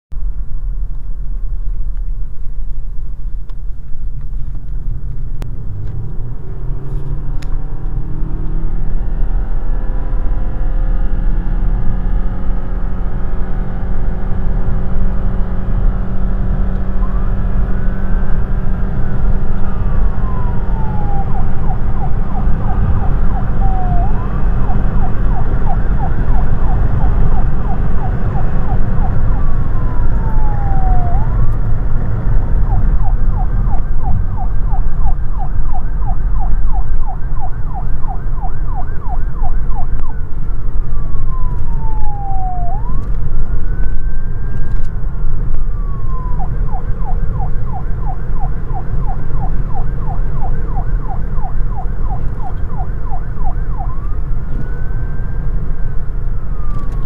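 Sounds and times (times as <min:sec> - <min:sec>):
car road and engine rumble: 0:00.1 - 0:57.0
siren wailing and yelping: 0:16.9 - 0:57.0.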